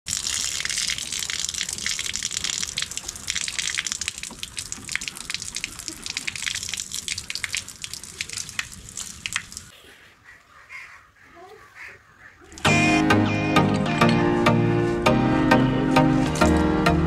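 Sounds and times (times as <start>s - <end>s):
water gushing from a tap: 0.1s - 9.7s.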